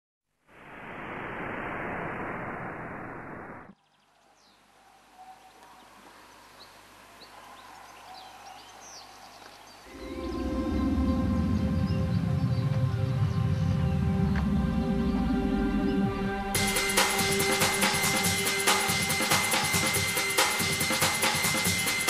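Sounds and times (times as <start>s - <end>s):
birds chirping: 3.7s - 16.9s
loud rushing noise: 9.9s - 22.0s
music with heavy low beat: 13.7s - 22.0s.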